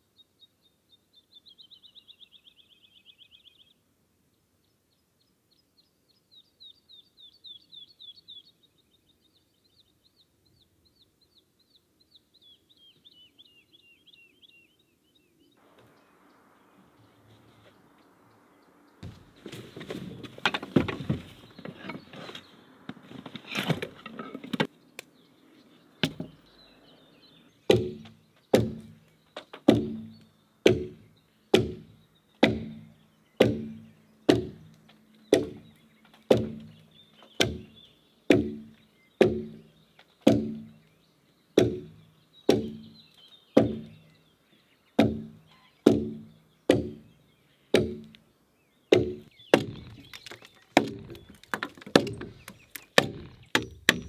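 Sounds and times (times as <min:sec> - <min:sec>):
axe chopping into a log: 0:27.7 - 0:29.0, 0:29.7 - 0:34.7, 0:35.3 - 0:35.7, 0:36.3 - 0:36.8, 0:37.4 - 0:37.7, 0:38.3 - 0:39.6, 0:40.2 - 0:40.8, 0:41.6 - 0:42.9, 0:43.6 - 0:44.0, 0:45.0 - 0:47.1, 0:47.7 - 0:48.1, 0:48.9 - 0:54.0
gear knocking and rustling: 0:49.6 - 0:54.0.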